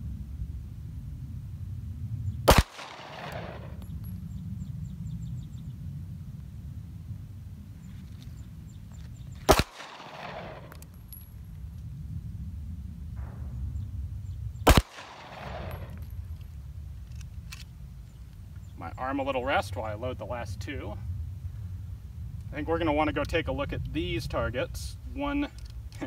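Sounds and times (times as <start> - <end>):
pistol shots with echo: 2.5 - 3.9, 9.5 - 10.9, 14.6 - 16.0.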